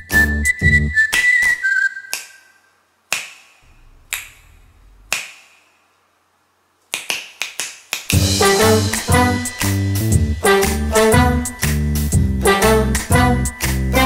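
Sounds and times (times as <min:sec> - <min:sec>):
finger snaps: 0:01.1 - 0:05.7, 0:06.9 - 0:08.2
upbeat backing song: 0:08.1 - 0:14.0.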